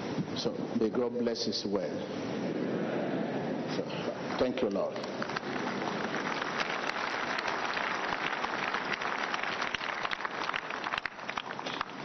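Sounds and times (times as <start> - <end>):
crowd applauding: 4.2 - 12.0.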